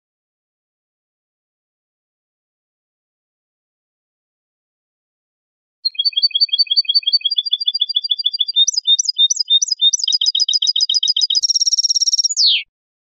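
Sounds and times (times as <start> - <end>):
goldfinch song: 5.8 - 12.7.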